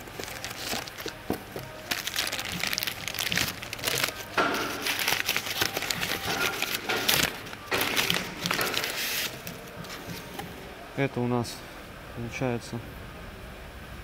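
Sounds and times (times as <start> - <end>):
paper crinkling and rustling: 0.0 - 10.5.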